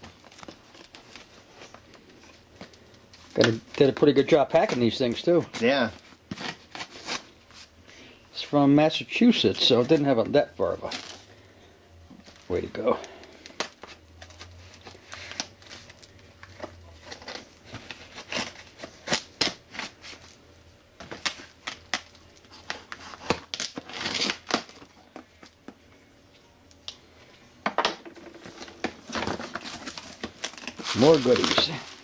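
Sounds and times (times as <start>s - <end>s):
tape being peeled: 0.0s - 7.7s, 13.4s - 20.4s, 21.0s - 25.6s, 28.5s - 32.0s
blade slitting packing tape: 23.2s - 24.8s.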